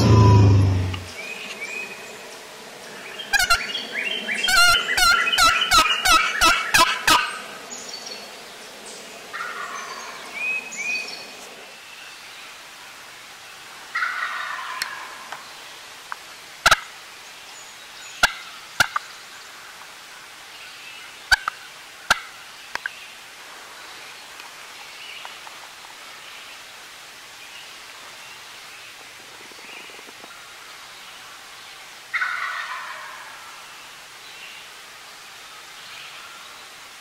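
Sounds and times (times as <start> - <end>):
turkey gobbling: 14.0 - 15.1, 32.1 - 33.2.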